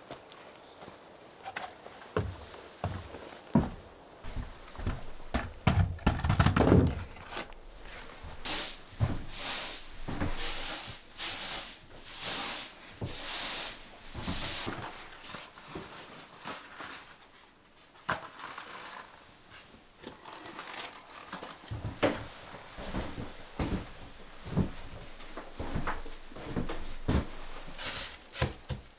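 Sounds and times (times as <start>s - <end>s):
knocks and thumps of handling: 3.6s - 8.4s.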